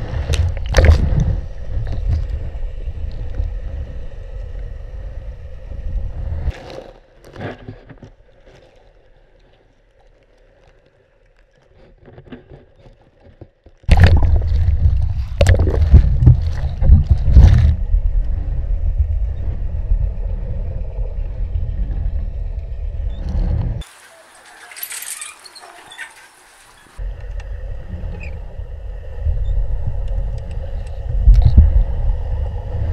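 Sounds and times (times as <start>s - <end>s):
deep underwater rumble: 0.0s - 7.2s, 13.9s - 23.8s, 26.9s - 32.9s
splashy water churning: 13.9s - 17.5s
faint clicks: 30.0s - 31.8s.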